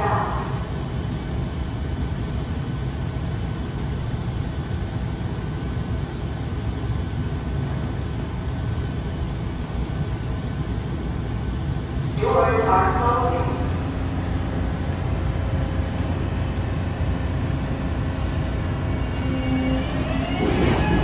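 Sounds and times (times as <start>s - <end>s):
train equipment low hum: 0.0s - 21.0s
faint whine: 5.3s - 21.0s.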